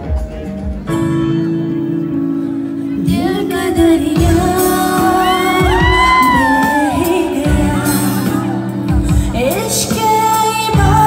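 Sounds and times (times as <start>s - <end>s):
pop backing track over speakers: 0.0s - 11.0s
woman singing into microphone: 2.7s - 11.0s.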